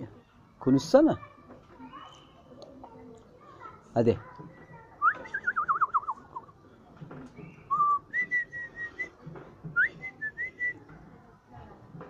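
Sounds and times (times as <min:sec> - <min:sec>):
person whistling: 0:07.7 - 0:09.1.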